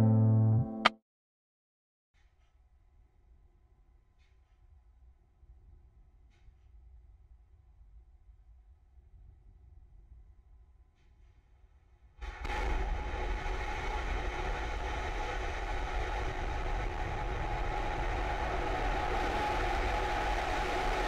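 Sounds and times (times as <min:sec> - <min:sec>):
rocket engine deep rumble: 0:12.4 - 0:21.0.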